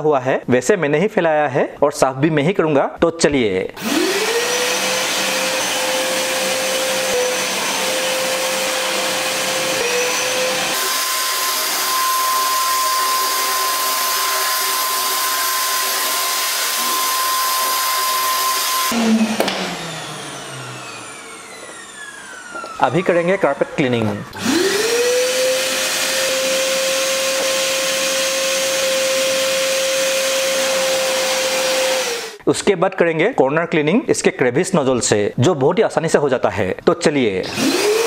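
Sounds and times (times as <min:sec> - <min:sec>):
vacuum cleaner whining: 0:03.8 - 0:32.4, 0:37.4 - 0:38.0.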